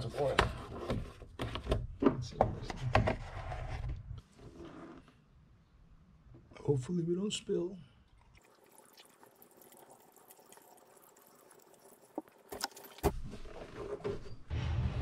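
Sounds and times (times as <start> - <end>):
oil pouring through a funnel: 8.0 - 13.0
low rumbling noise: 14.5 - 15.0.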